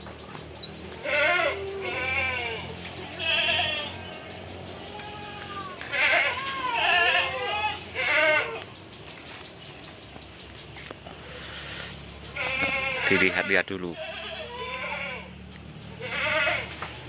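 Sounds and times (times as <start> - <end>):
animal bleating: 0.9 - 8.7, 12.2 - 17.0.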